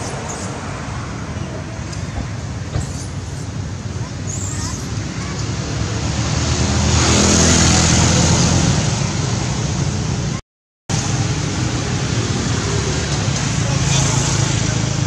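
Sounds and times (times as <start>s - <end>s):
vehicle passing: 0.0s - 10.4s.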